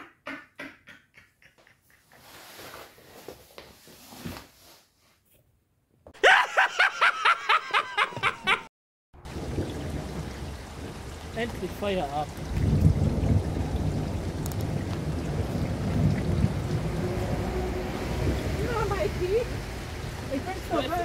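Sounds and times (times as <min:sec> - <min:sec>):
man laughing evilly: 0:00.0 - 0:02.3, 0:06.2 - 0:08.7
rapid cackling laugh: 0:00.0 - 0:02.3, 0:06.2 - 0:08.7
steady rain: 0:09.2 - 0:21.0.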